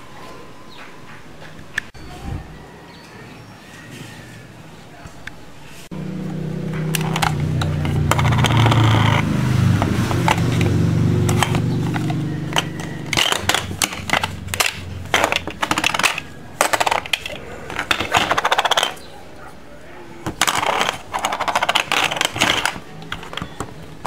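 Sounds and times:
low hum: 5.9s - 18.9s
plastic toy clicking and rattling: 6.9s - 9.3s, 11.3s - 19.0s, 20.2s - 24.0s.

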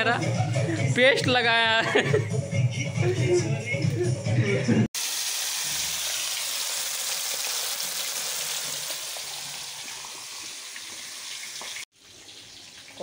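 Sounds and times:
fish deep-frying in oil: 5.0s - 13.0s.

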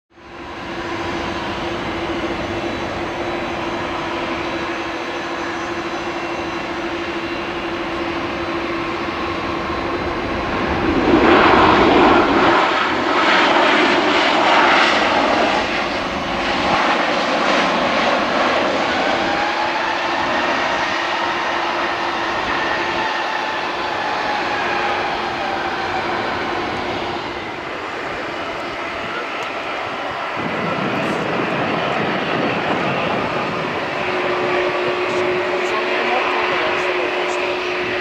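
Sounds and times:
airliner taxiing past: 0.2s - 38.0s
jet engines whining: 0.2s - 38.0s.

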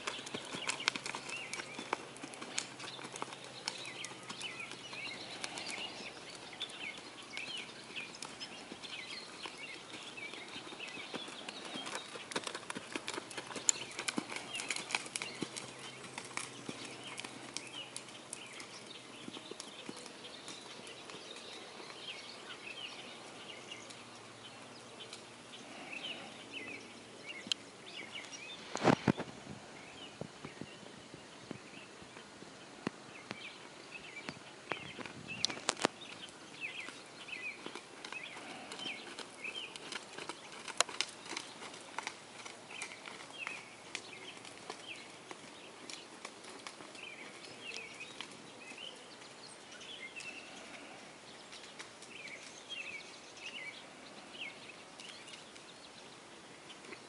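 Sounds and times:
horse cantering on sand: 0.0s - 24.0s, 33.4s - 50.9s
birds chirping: 0.0s - 57.0s.

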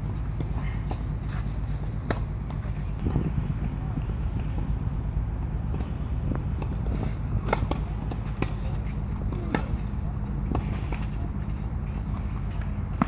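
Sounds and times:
low rumble: 0.0s - 13.0s
tennis ball hit by racquets: 0.1s - 2.8s, 4.0s - 13.0s.

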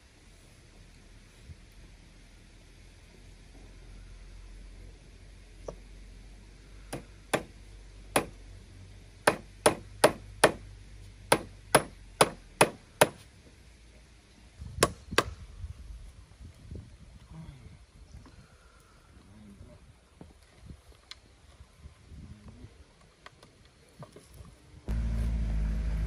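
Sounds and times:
hand tool striking wood: 6.9s - 7.5s, 8.1s - 8.4s, 9.2s - 10.6s, 11.3s - 13.2s.

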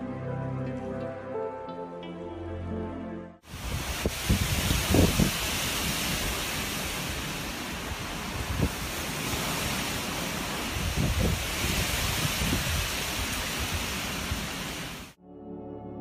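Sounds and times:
strong wind rushing through trees: 3.4s - 15.2s
wind gusts buffeting microphone: 3.5s - 15.2s.

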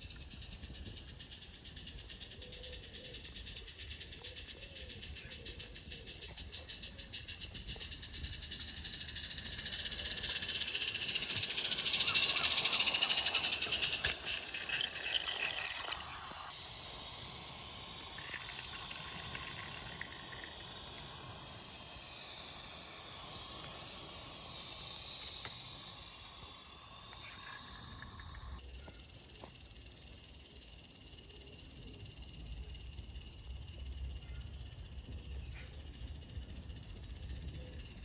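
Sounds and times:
steam locomotive hissing: 6.8s - 28.6s.

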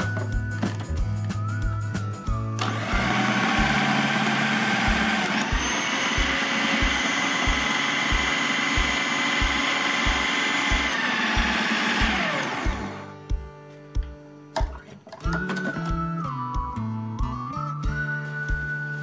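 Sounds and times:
food processor chopping vegetables: 2.6s - 13.1s.

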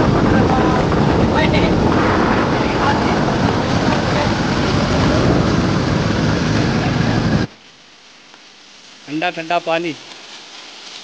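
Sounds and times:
motorcycle engine running: 0.0s - 7.5s
wind rushing over microphone: 0.0s - 7.5s.

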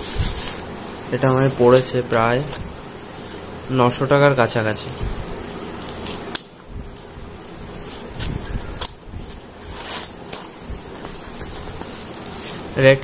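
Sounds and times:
cardboard rustling and crackling: 0.0s - 13.0s
scissors snipping tape: 7.8s - 9.0s.

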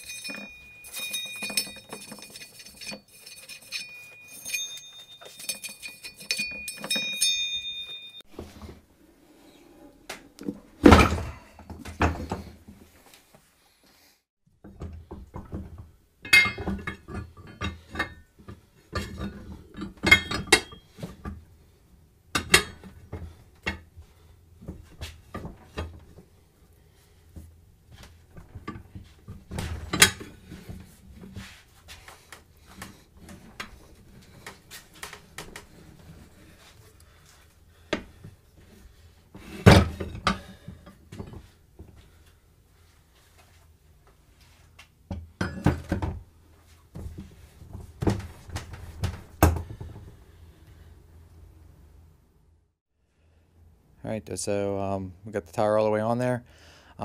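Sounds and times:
metal bar clanking on wheel rim: 0.0s - 8.2s.

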